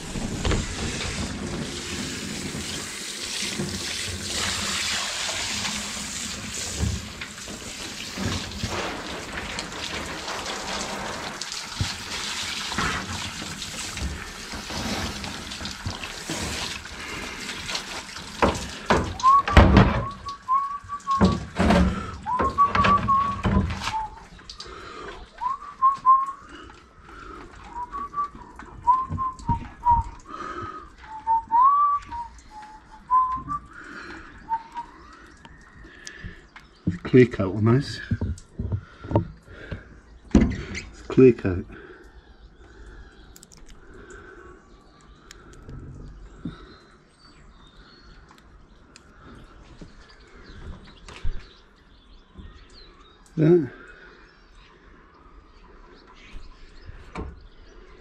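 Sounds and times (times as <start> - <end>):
person whistling a tune: 19.2 - 21.4, 22.2 - 24.2, 25.4 - 26.7, 27.7 - 30.4, 31.1 - 33.8, 34.4 - 35.0
small birds chirping: 22.0 - 58.0
handling knocks and taps: 38.0 - 40.6.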